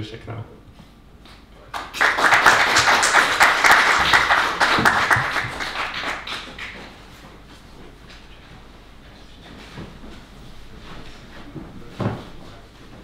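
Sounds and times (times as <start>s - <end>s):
audience applauding: 1.7s - 7.0s.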